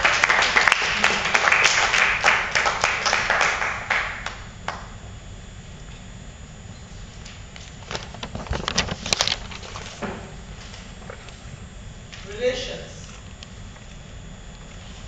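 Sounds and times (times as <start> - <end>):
audience clapping: 0.0 - 5.0.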